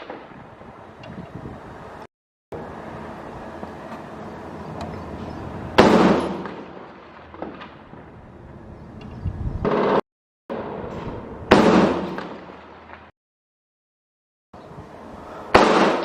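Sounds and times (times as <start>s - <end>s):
outdoor background noise: 0.0s - 13.1s, 14.6s - 16.0s
loud explosion: 5.7s - 8.2s, 9.5s - 13.0s.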